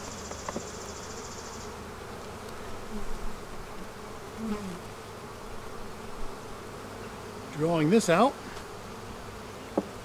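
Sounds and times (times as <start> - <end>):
bees buzzing: 0.0 - 10.0
bees passing close: 0.0 - 10.0.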